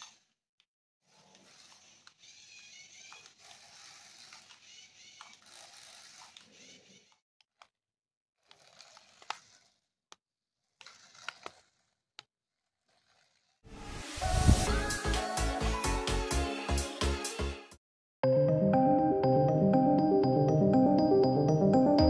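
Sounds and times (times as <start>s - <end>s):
small motor and gears whirring: 1.0s - 7.7s, 8.4s - 14.3s.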